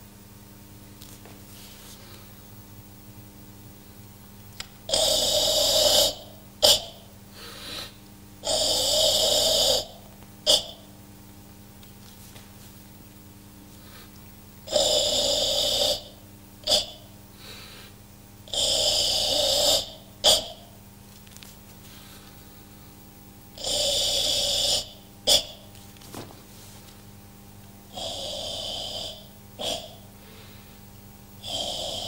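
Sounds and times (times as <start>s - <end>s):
short sharp breath: 7.4s - 8.0s.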